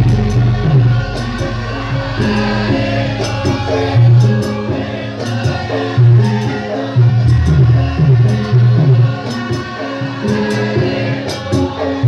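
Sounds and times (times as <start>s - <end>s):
low gong strokes: 0.0s - 5.4s
gamelan music: 0.0s - 12.0s
person singing: 0.0s - 12.0s.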